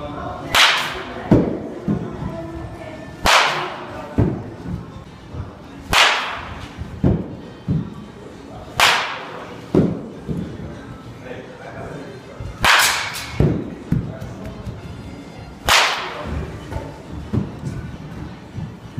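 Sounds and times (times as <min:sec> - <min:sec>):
bat cracking on ball: 0:00.6 - 0:01.6, 0:03.2 - 0:04.4, 0:05.9 - 0:07.3, 0:08.8 - 0:10.0, 0:12.6 - 0:13.6, 0:15.6 - 0:16.3.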